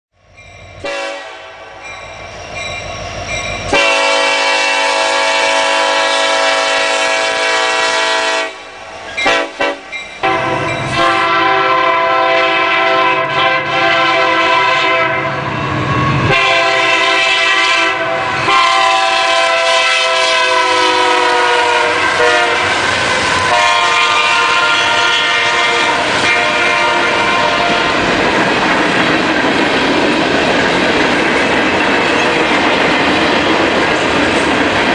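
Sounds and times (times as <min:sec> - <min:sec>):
locomotive air horn chord: 0:00.8 - 0:01.9, 0:03.7 - 0:28.0.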